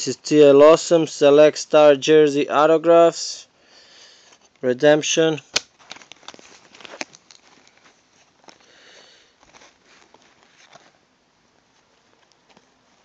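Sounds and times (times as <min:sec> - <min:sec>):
cards flipped by hand: 0:05.5 - 0:08.7.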